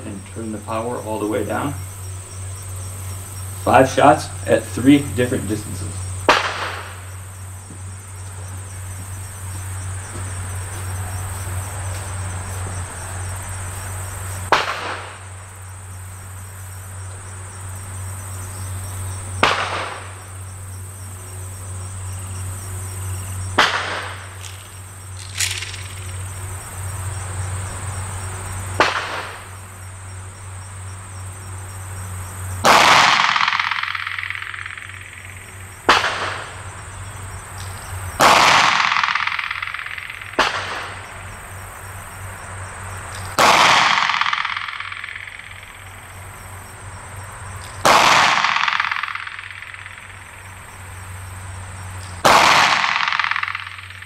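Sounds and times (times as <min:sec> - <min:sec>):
insects droning: 0:00.0 - 0:54.0
gunshots with echo: 0:06.3 - 0:07.0, 0:25.2 - 0:26.3, 0:32.6 - 0:36.5, 0:38.2 - 0:41.0, 0:43.4 - 0:45.8, 0:47.8 - 0:50.4, 0:52.2 - 0:54.0.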